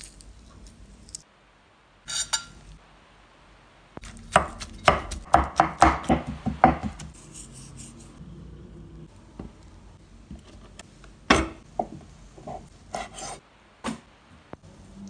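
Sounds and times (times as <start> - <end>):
knife chopping on wooden board: 4.3 - 7.2.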